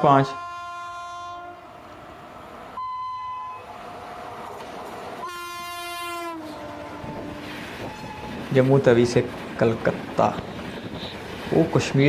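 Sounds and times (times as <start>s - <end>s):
locomotive horn blasts: 0.0s - 1.7s, 5.2s - 8.4s
train rumbling: 0.0s - 12.0s.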